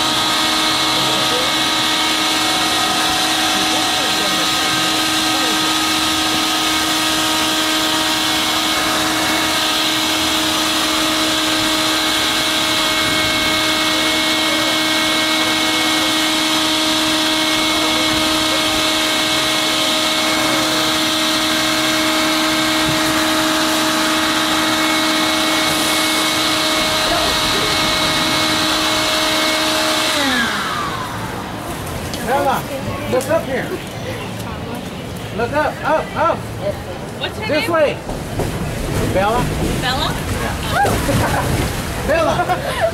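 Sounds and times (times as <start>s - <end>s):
electric air blower whine: 0.0s - 33.3s.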